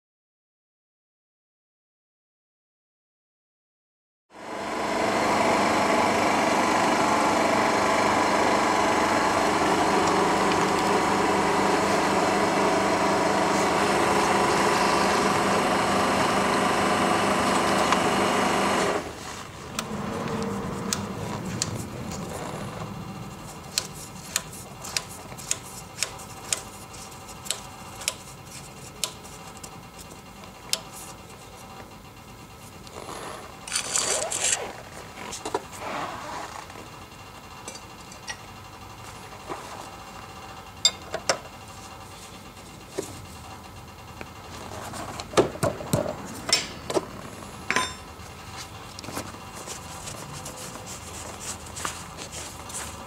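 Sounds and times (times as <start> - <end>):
scooter engine running: 4.4 - 32.0, 39.0 - 53.0
hand tool clicking: 23.7 - 26.7.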